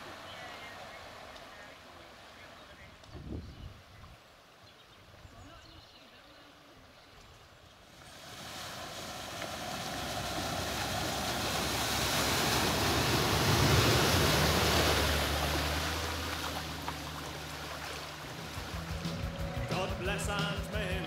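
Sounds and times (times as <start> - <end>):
tyres churning water: 0.0 - 3.1, 7.8 - 21.0
car engine hum: 8.5 - 21.0.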